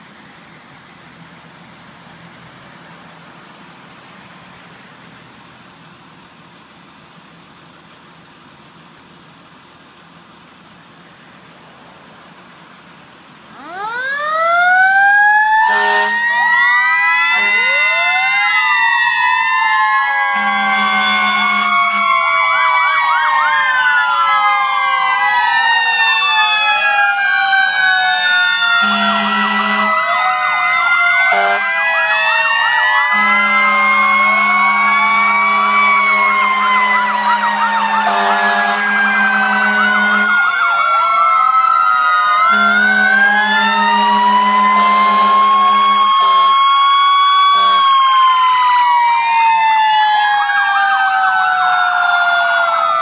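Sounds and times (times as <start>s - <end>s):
sirens wailing and yelping: 6.9s - 53.0s
low air horn blasts: 15.6s - 16.2s, 17.3s - 18.0s, 20.3s - 22.2s, 28.8s - 30.2s, 31.3s - 31.7s, 33.1s - 40.5s, 42.5s - 46.6s, 47.5s - 48.0s.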